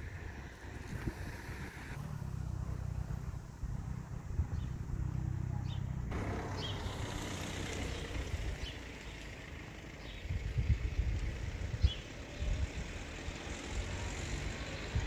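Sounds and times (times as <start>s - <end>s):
car engine rumble: 0.0s - 15.0s.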